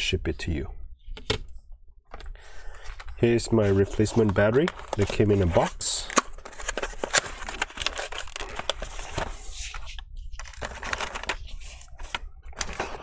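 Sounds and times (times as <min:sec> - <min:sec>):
plastic tray crackling: 0:02.9 - 0:13.0.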